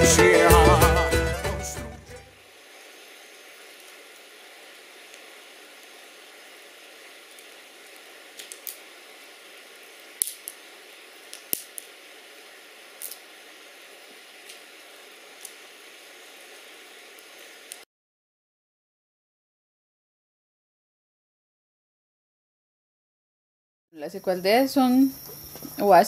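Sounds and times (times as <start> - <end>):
fire hissing: 0.0 - 17.9, 24.1 - 26.0
fire crackling and popping: 2.4 - 17.9.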